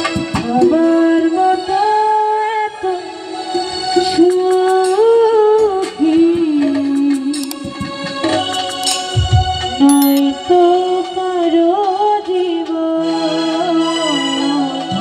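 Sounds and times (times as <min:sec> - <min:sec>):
light instrumental backing: 0:08.7 - 0:10.2.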